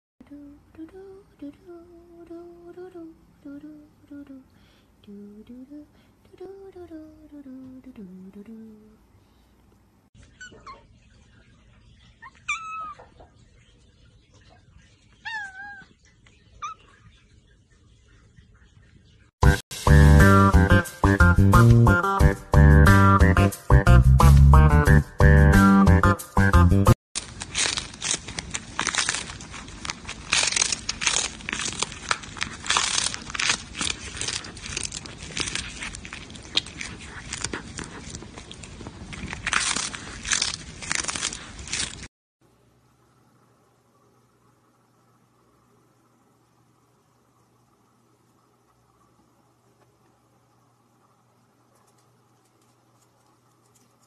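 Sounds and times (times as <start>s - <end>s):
cat crunching dried fish: 27.2s - 42.1s, 51.7s - 54.0s.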